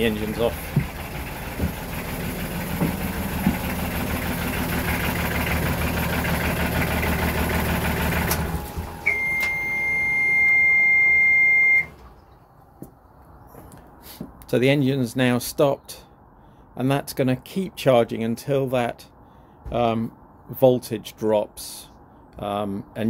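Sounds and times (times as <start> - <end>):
marine diesel engine running: 0.0 - 12.2
alarm buzzer beep: 9.0 - 11.9.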